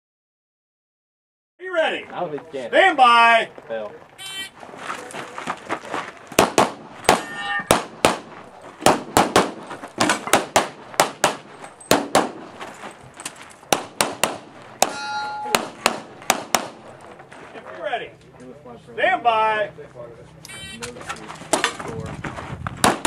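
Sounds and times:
pistol firing rapid shots: 0:06.4 - 0:12.5, 0:13.7 - 0:14.5, 0:15.6 - 0:16.8
steel target ringing: 0:07.0 - 0:07.8, 0:14.8 - 0:15.8.

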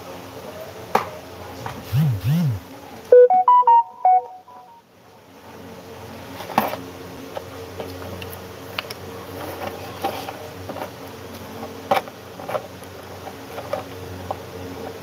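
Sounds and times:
steady low hum: 0:01.6 - 0:03.3.

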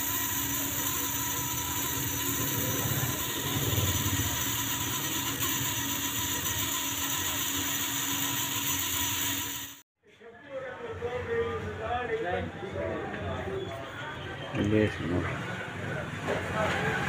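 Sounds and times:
small electric motor whirring: 0:00.0 - 0:09.8.

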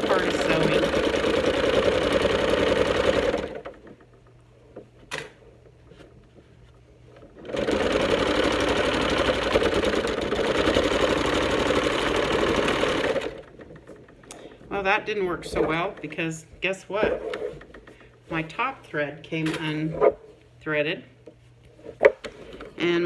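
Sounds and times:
sewing machine stitching: 0:00.0 - 0:04.1, 0:07.3 - 0:14.2.

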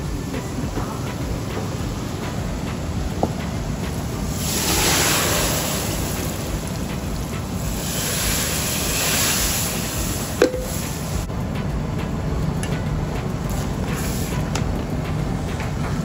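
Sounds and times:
steady low rumble: 0:00.0 - 0:16.0
hot oil sizzling loudly: 0:04.0 - 0:11.3.

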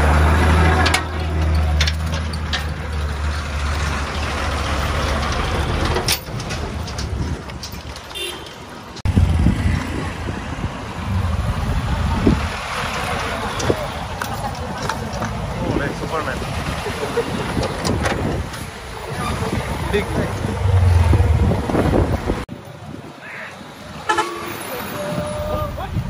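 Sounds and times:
street and traffic noise: 0:00.0 - 0:26.0
sharp clicks and knocks: 0:00.8 - 0:03.9, 0:04.9 - 0:09.1
diesel truck engine running: 0:09.0 - 0:22.4.

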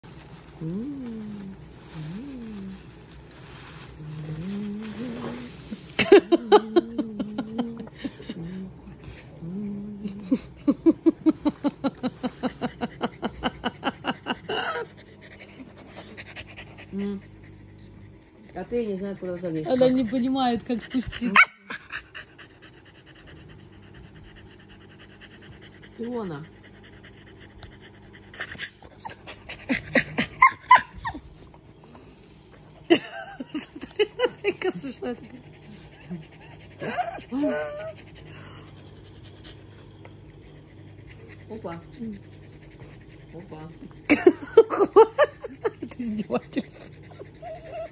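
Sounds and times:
dog panting fast: 0:14.5 - 0:28.6, 0:34.5 - 0:47.9
dog whining with high yelps: 0:28.4 - 0:31.4.

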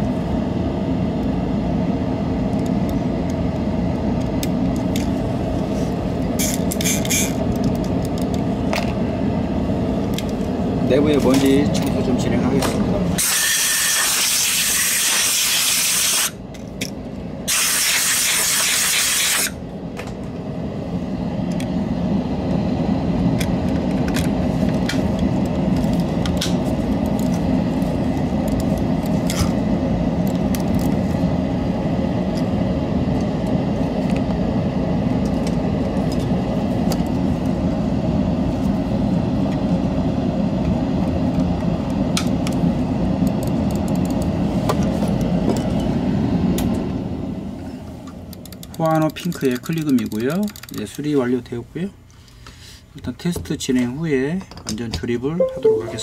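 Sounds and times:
compressed air hissing: 0:13.2 - 0:16.4, 0:17.5 - 0:19.6.

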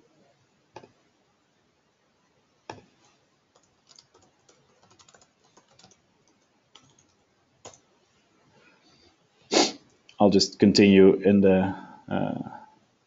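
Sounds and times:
typing on computer keyboard: 0:03.5 - 0:07.8.

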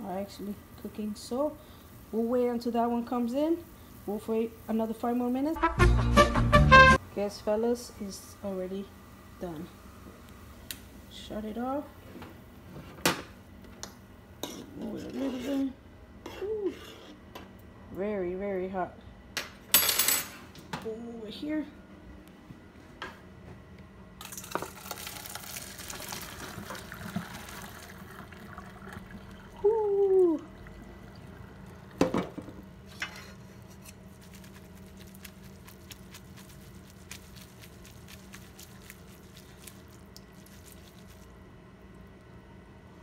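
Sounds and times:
water pouring into a colander: 0:24.2 - 0:32.0
water dripping: 0:35.0 - 0:41.3.

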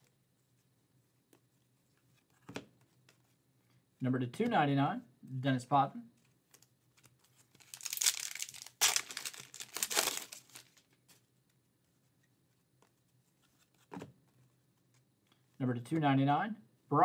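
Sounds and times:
cards being handled: 0:06.2 - 0:11.6
foil wrapper tearing and crinkling: 0:07.6 - 0:10.9.

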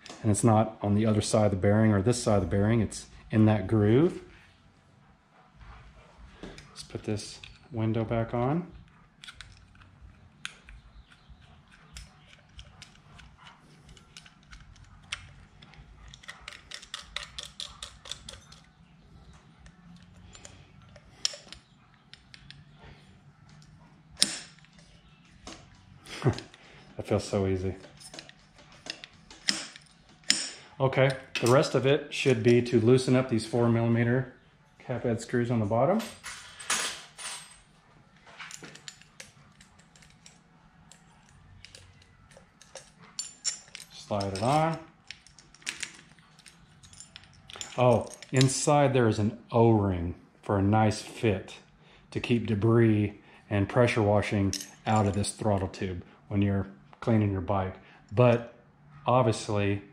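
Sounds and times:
small metallic clicks: 0:09.2 - 0:18.7, 0:38.5 - 0:48.5.

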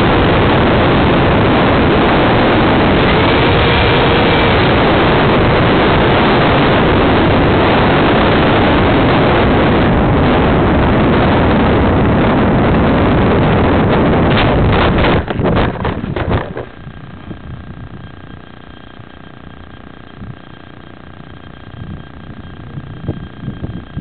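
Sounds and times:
airflow rush: 0:00.0 - 0:16.7
electric ducted fan noise: 0:00.0 - 0:24.0.

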